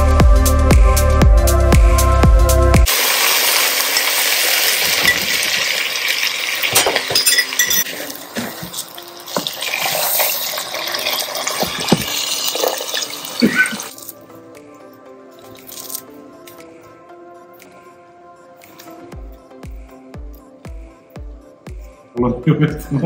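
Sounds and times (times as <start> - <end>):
food sizzling in a pot: 2.9 - 14.2
water poured into pot: 2.9 - 14.2.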